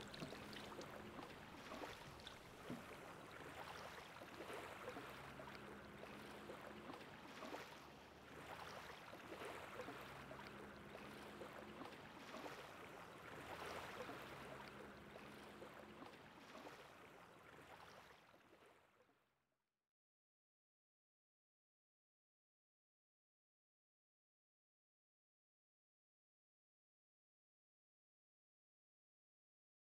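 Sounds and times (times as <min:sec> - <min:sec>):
water lapping: 0:00.0 - 0:19.0.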